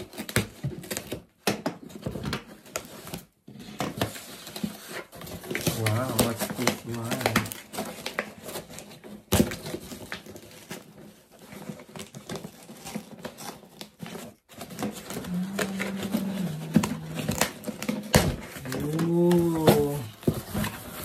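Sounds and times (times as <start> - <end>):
cardboard box handled: 14.0 - 21.0.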